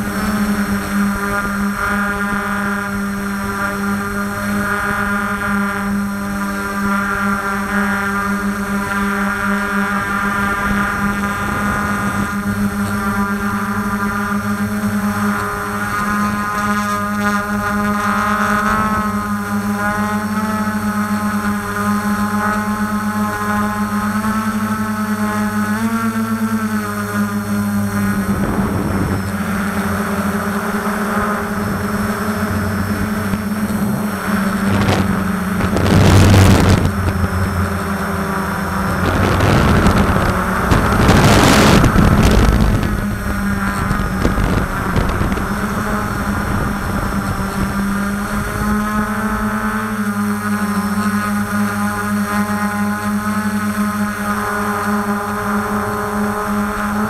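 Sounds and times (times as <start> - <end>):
drone propellers droning: 0.0 - 57.0
loud rushing noise: 28.2 - 47.8.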